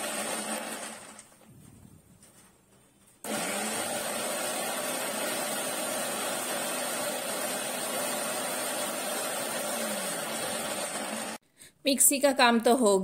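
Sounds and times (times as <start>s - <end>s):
mixer grinder motor whining: 0.0s - 1.3s, 3.2s - 11.4s.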